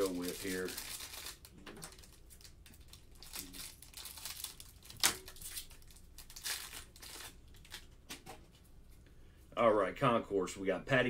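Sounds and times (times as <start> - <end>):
plastic wrapper crinkling and tearing: 0.0 - 8.0.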